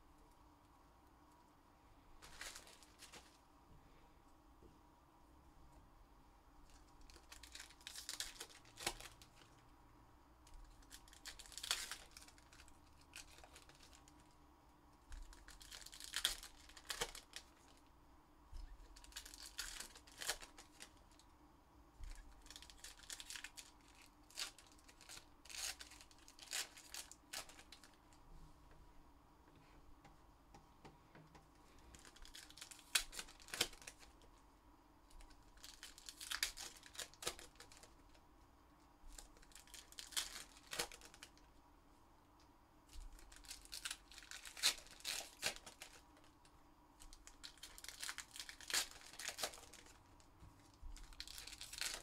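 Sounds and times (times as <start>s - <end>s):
foil wrappers tearing and crinkling: 2.2s - 3.4s, 6.8s - 9.5s, 10.8s - 14.2s, 15.2s - 17.8s, 18.9s - 21.0s, 22.1s - 28.0s, 31.9s - 34.2s, 35.2s - 38.1s, 39.1s - 41.4s, 43.2s - 46.0s, 47.1s - 50.0s, 51.0s - 52.0s.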